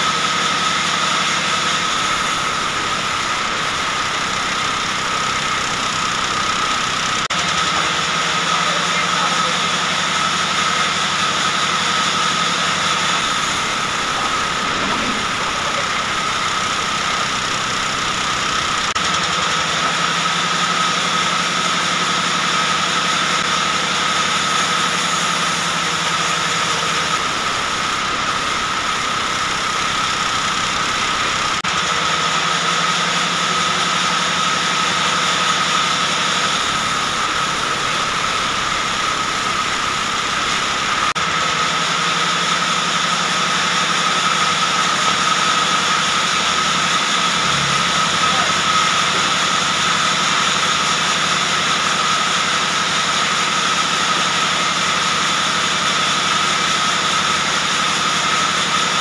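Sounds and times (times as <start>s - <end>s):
band saw whining through log: 0.0s - 59.0s
low hum: 1.8s - 7.3s, 12.6s - 19.0s, 46.4s - 50.0s.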